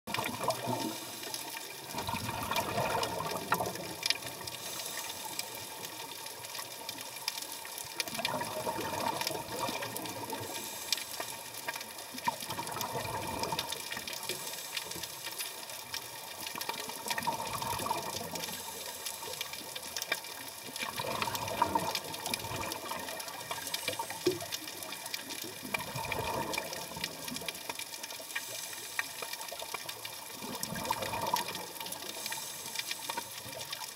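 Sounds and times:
scuba regulator exhalation bubbles: 0.1s - 1.0s, 1.9s - 4.4s, 8.0s - 10.4s, 12.3s - 13.8s, 17.1s - 18.5s, 20.8s - 23.7s, 25.6s - 27.4s, 30.4s - 31.8s
steady hiss with fine clicking: 0.1s - 2.0s, 3.2s - 33.9s.

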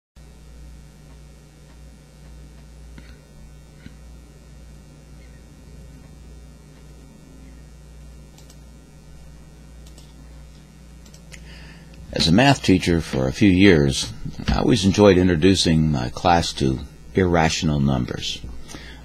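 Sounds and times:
electrical mains hum: 0.2s - 19.0s
faint clicks: 8.3s - 8.6s, 9.8s - 12.0s.

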